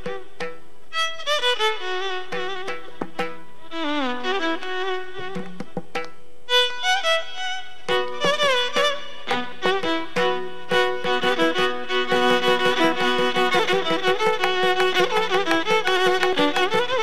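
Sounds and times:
hand drum strokes: 0.0 - 0.8, 2.2 - 3.6, 4.3 - 6.3, 7.8 - 17.0
shruti box drone: 0.0 - 17.0
violin melody: 0.0 - 17.0.

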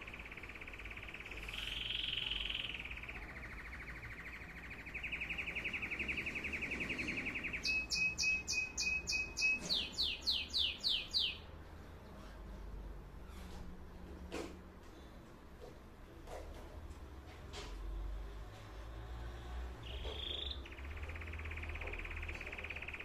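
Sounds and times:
canary singing trills: 0.0 - 11.6, 19.8 - 23.0.

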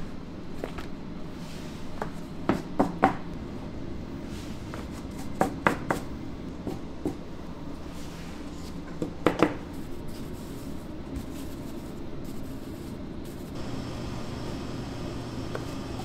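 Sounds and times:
steady machine hum: 3.2 - 5.2, 12.0 - 16.0
deeper hum: 13.6 - 16.0.

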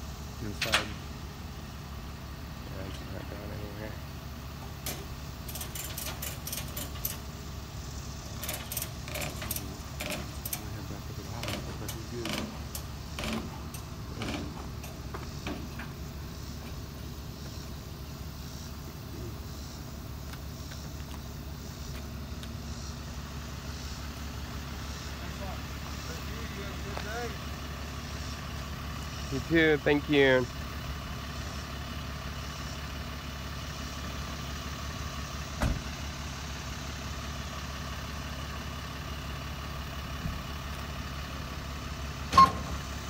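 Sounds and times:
truck engine idling: 0.0 - 43.0
light metallic clicks and jingles: 4.8 - 7.3.

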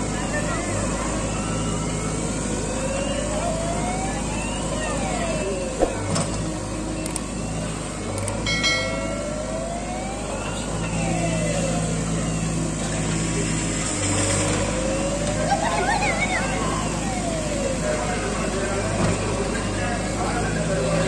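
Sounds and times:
diesel engine under load: 0.0 - 21.0.

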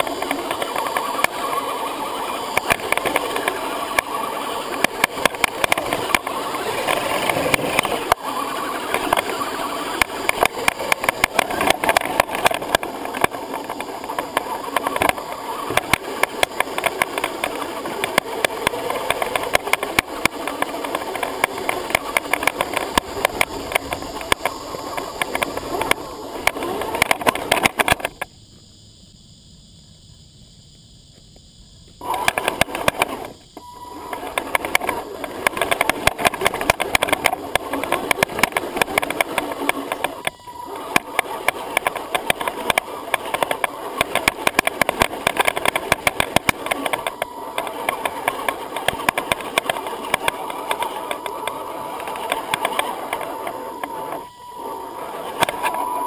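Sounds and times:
toy car motor and gears: 0.0 - 28.3, 31.9 - 56.0.

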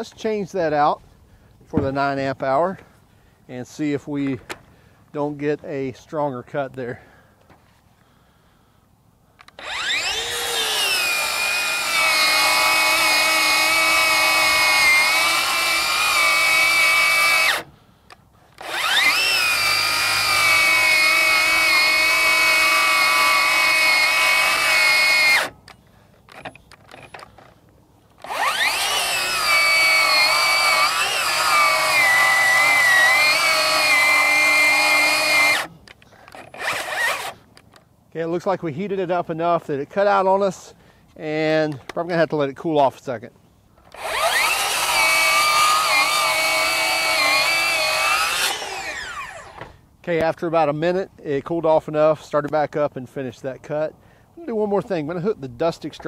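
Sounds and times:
circular saw cutting wood: 9.4 - 17.7, 18.6 - 25.6, 28.2 - 35.7, 36.4 - 37.4, 43.9 - 49.7.

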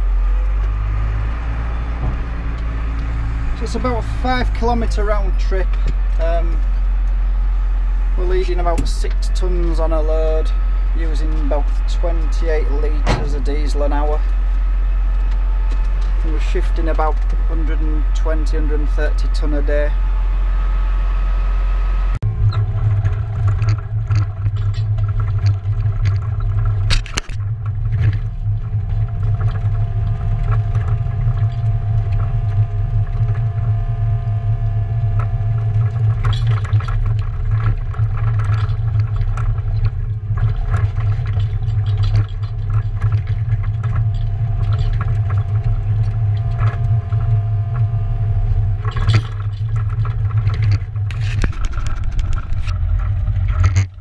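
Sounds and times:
diesel engine running: 0.0 - 54.0
high whine: 0.0 - 54.0
bucket scraping soil and stones: 2.2 - 7.6, 8.2 - 20.0, 35.8 - 47.3, 48.8 - 54.0.

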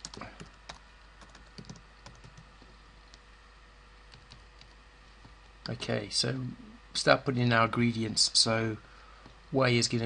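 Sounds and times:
computer keyboard typing: 0.0 - 2.8, 4.1 - 5.4.

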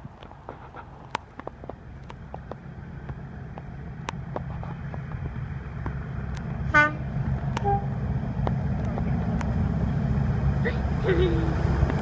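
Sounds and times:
diesel locomotive engine rumble: 0.0 - 12.0.

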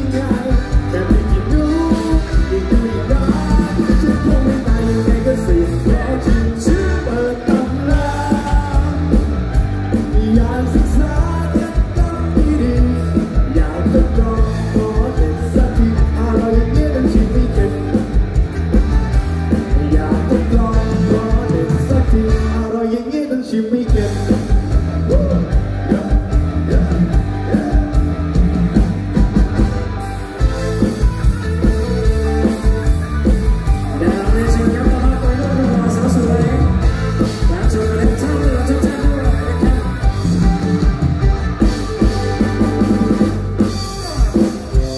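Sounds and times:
man singing into microphone: 0.0 - 18.2, 19.6 - 28.0, 33.8 - 40.2
amplified rock accompaniment: 0.0 - 44.9.

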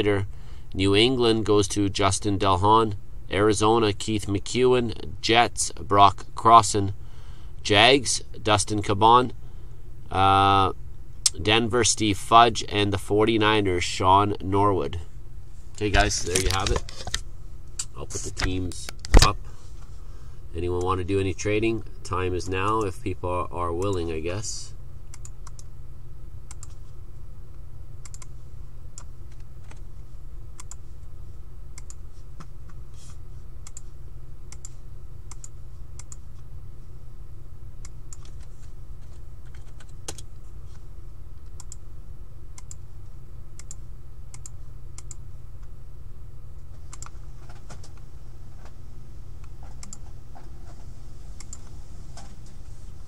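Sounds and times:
steady low hum: 0.0 - 53.0
computer keyboard typing: 28.0 - 28.3.

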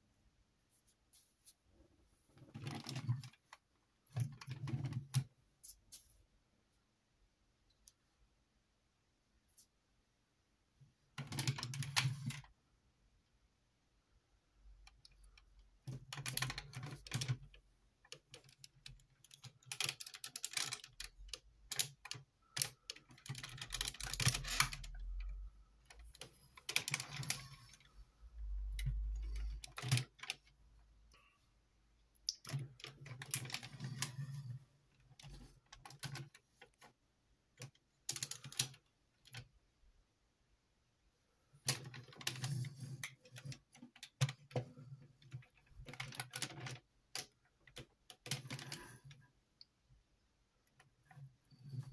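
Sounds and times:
plastic parts clicking and rattling: 2.4 - 5.3, 11.2 - 12.5, 14.8 - 31.2, 32.2 - 39.5, 41.6 - 49.3.

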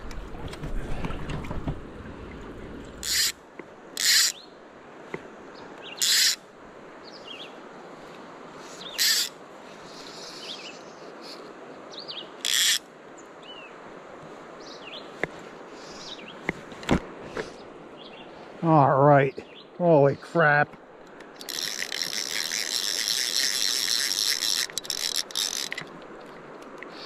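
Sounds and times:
small birds chirping: 5.5 - 6.3, 7.0 - 7.6, 8.6 - 12.6, 14.6 - 16.5, 17.3 - 18.5, 19.2 - 20.4.

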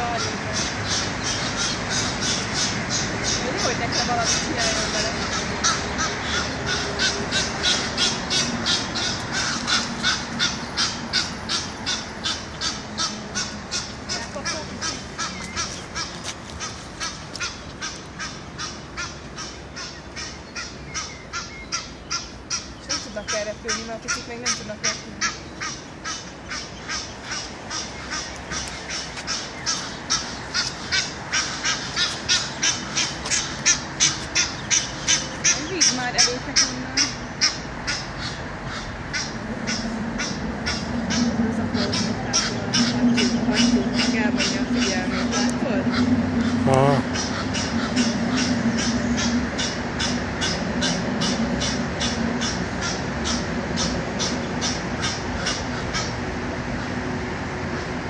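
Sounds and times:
goose honking: 0.0 - 57.0.

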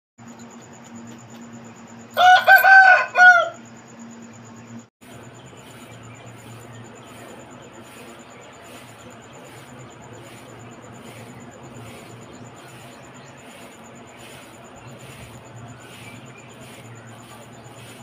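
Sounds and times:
rooster crowing: 2.1 - 3.7.

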